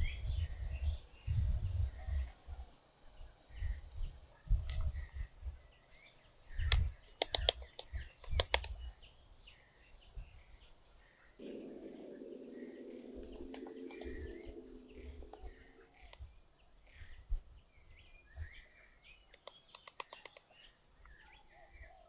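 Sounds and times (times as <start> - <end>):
insects trilling: 0.0 - 22.0
low hum: 11.4 - 16.2.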